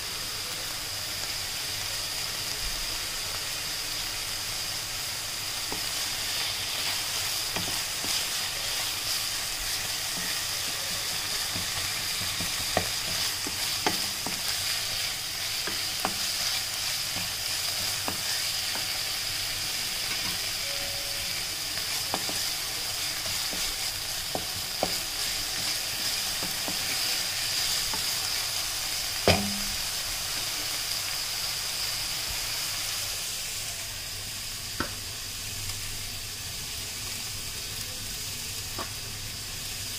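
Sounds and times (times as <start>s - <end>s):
capsicum sizzling in a pan: 0.0s - 39.9s.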